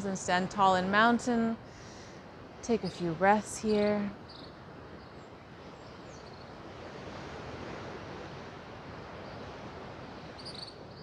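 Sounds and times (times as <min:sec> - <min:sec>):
faint insect chirps: 0:04.2 - 0:06.6, 0:10.2 - 0:11.0.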